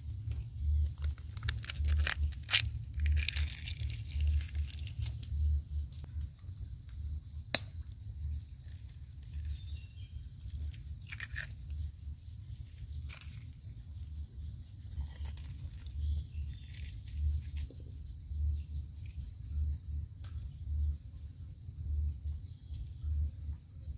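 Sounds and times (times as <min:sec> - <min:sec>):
low rumble: 0:00.0 - 0:23.9
eggshell cracking: 0:00.8 - 0:05.4, 0:10.5 - 0:11.7.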